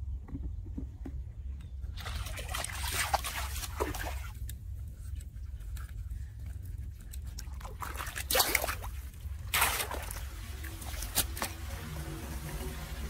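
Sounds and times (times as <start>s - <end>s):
rake splashing in water: 2.0s - 4.4s, 7.2s - 13.0s
water trickling into drain: 8.8s - 13.0s.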